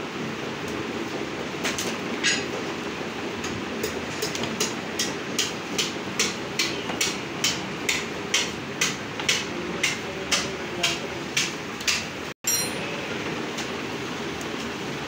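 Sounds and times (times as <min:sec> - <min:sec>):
steady background noise: 0:00.0 - 0:15.0.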